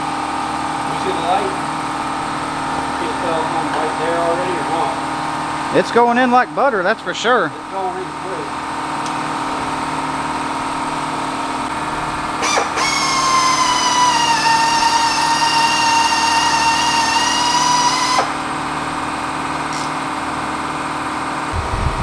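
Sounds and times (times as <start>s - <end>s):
drill high whine: 12.3s - 18.5s.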